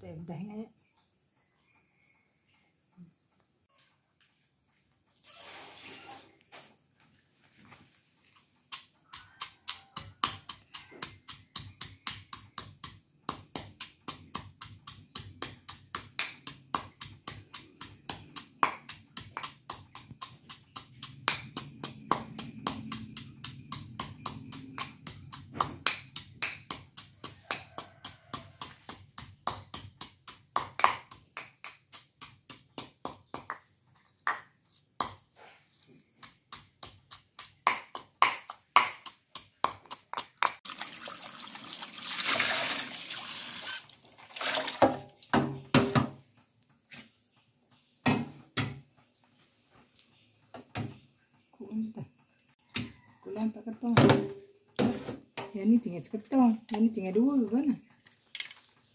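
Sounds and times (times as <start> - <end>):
stone pestle pounding in mortar: 8.7 - 34.4, 36.2 - 40.7.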